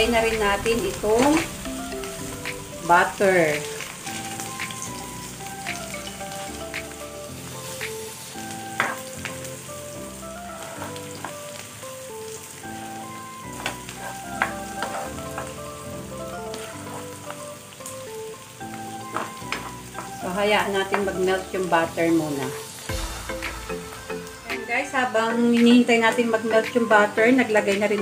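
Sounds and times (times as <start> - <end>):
onions sizzling in a frying pan: 0.0 - 28.0
spatula scraping a pan: 14.0 - 15.5, 16.8 - 17.2.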